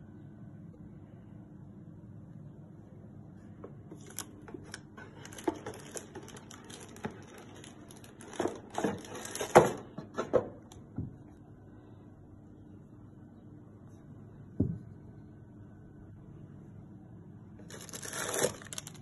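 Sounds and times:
packaging crinkling: 3.9 - 9.8, 17.6 - 19.0
hands rummaging in cardboard box: 5.1 - 9.8.

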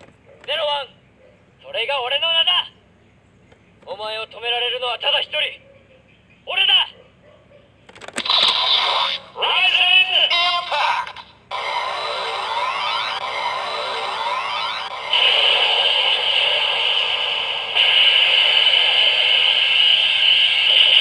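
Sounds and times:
electronic toy voice: 8.2 - 16.9
rising siren-like electronic sweeps: 11.5 - 21.0
steady electronic tones: 11.5 - 21.0.

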